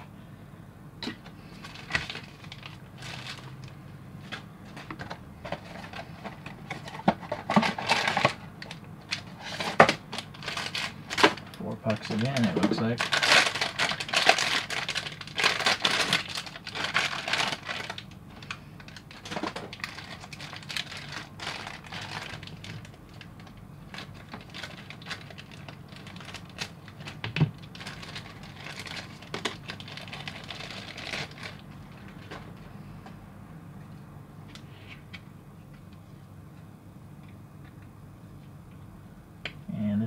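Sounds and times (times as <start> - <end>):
plastic packaging crinkling: 1.6 - 3.7, 4.3 - 32.6.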